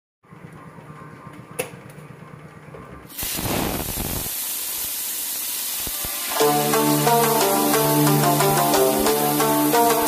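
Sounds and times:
vegetables sizzling in hot oil: 3.1 - 10.0.

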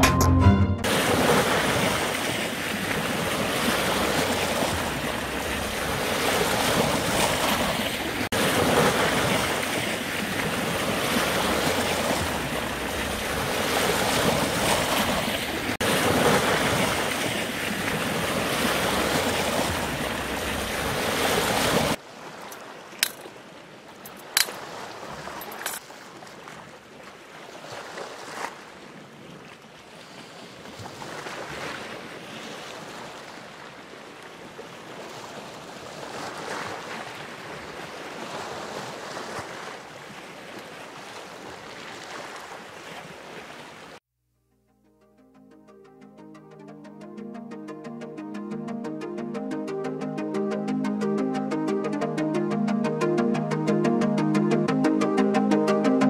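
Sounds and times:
waves breaking over rocks: 0.9 - 44.0.

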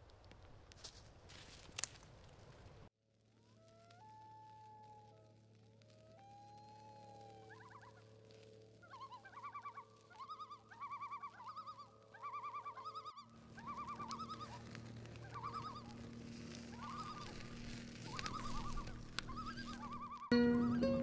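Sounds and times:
warbling trill calls: 6.0 - 21.0.

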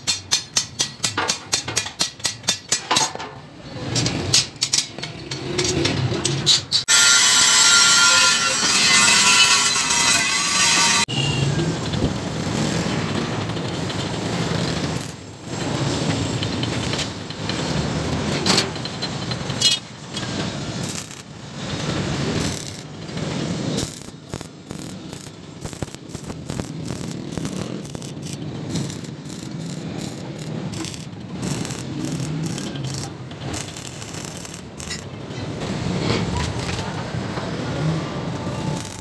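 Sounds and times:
arc welding crackle: 6.9 - 11.0, 14.0 - 15.8, 20.7 - 35.1, 38.8 - 39.0.

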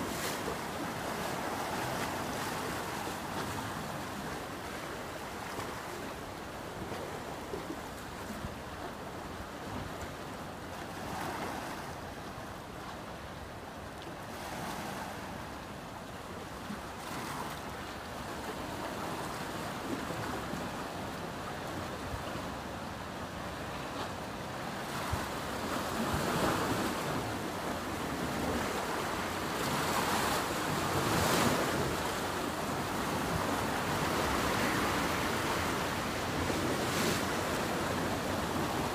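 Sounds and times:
sea waves washing: 22.6 - 38.9.

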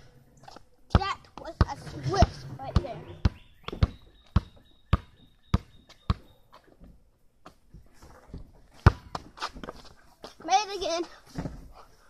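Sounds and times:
basketball bouncing on asphalt: 0.9 - 1.8, 2.7 - 6.6, 8.7 - 9.8.

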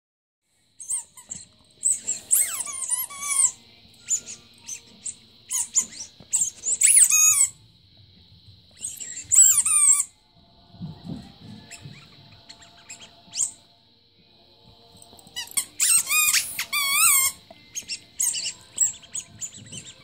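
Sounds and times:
squeaky toy squeaking: 0.8 - 7.5, 8.8 - 10.1, 15.4 - 20.0.

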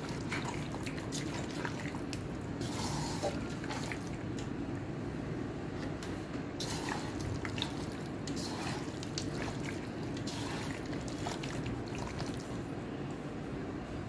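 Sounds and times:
wet squelching of kneaded meat: 0.0 - 4.5, 6.6 - 12.6
steady low hum: 0.0 - 14.0.

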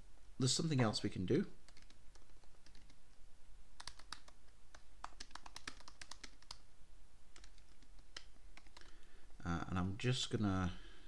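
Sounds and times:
typing on a keyboard: 1.6 - 3.0, 3.8 - 6.6, 7.4 - 9.0.

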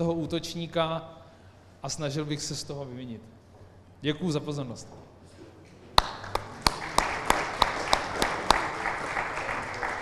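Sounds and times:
audience applauding: 6.0 - 10.0
nearby hands clapping loudly: 6.0 - 10.0.

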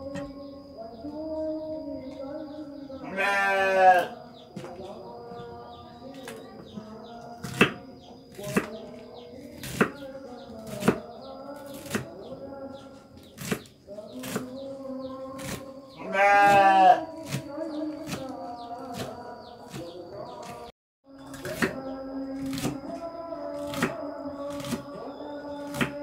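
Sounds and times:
goat or sheep bleating: 3.0 - 4.2, 16.0 - 17.2
knife chopping on wooden board: 7.4 - 7.8, 25.7 - 26.0.

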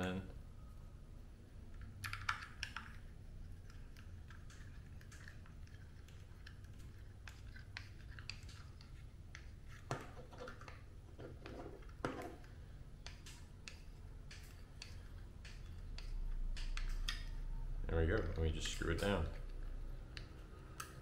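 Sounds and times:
sharp plastic clicks: 12.4 - 17.4.

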